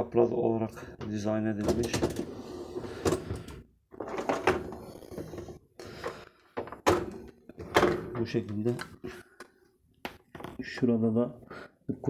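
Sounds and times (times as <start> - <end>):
dish racks knocking and rattling: 1.1 - 2.2, 6.1 - 8.7.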